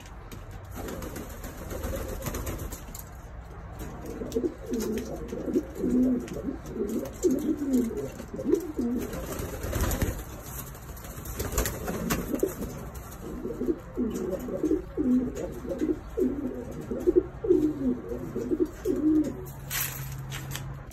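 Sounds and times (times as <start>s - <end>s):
pigeons cooing: 3.8s - 10.2s, 11.4s - 19.5s.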